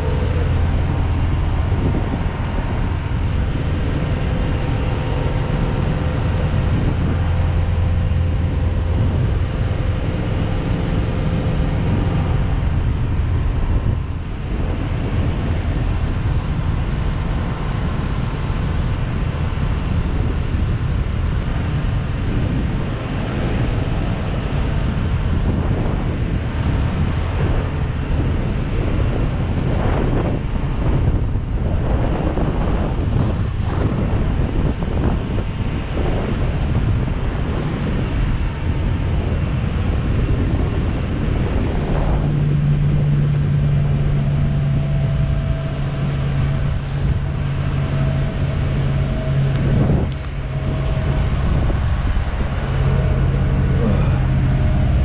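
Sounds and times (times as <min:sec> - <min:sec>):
boat engine drone: 0:00.0 - 0:55.0
wind buffeting microphone: 0:00.0 - 0:55.0
water rushing past hull: 0:31.8 - 0:55.0.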